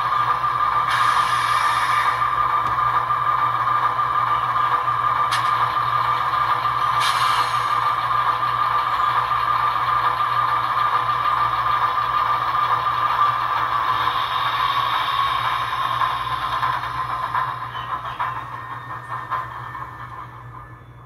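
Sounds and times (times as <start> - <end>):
diesel engine sound from small speaker: 0.0 - 21.0
sharp click: 5.3 - 5.6.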